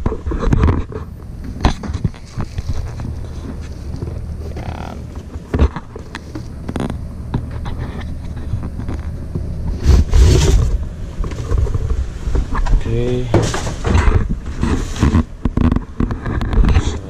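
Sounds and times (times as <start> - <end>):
low rumble: 0.0 - 17.0
plastic bag rustling: 1.7 - 10.6.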